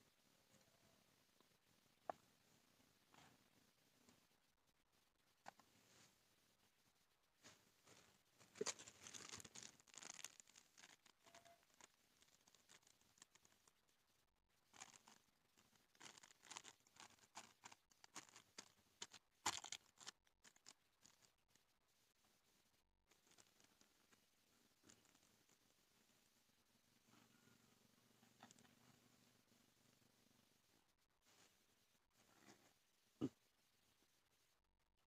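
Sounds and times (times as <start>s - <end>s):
plastic and foil sheet crinkling: 7.9s - 13.8s, 14.7s - 21.4s, 23.1s - 23.9s.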